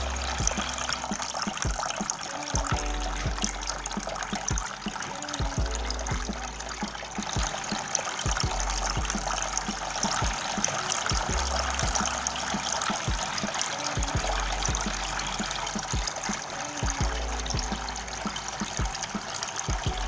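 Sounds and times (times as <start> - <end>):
background music with low beat: 0.0 - 20.0
fountain water trickling: 0.0 - 20.0.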